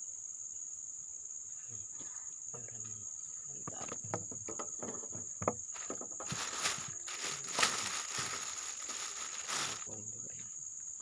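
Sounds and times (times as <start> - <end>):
high-pitched insect drone: 0.0 - 11.0
plastic bag rustling: 5.7 - 10.0.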